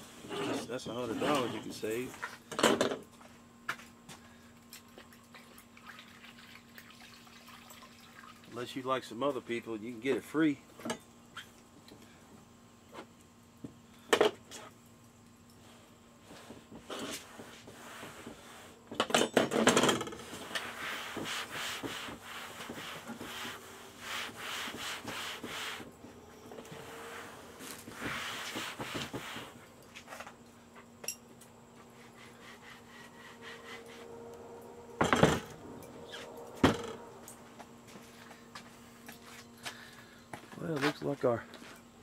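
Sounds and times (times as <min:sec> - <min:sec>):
cloth wiping metal: 0:20.2 - 0:29.7.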